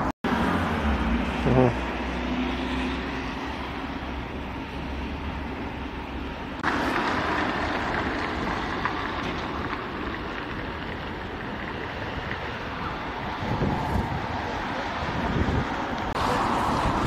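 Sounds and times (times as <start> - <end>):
traffic noise: 0.0 - 17.0
wind on microphone: 12.0 - 17.0.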